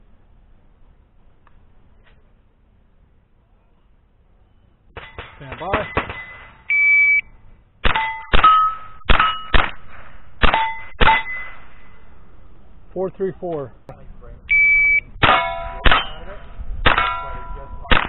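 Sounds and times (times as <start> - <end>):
steel plate ringing: 5.0 - 6.8, 7.9 - 12.2, 15.2 - 17.9
shot timer beep: 6.7 - 7.3, 11.0 - 11.6, 14.5 - 15.2
rifle shots: 7.8 - 12.0, 16.8 - 18.0.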